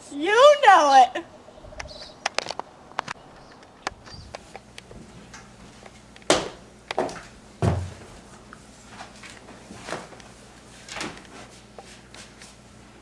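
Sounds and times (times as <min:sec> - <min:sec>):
loud knocks and thuds: 0:06.3 - 0:08.1.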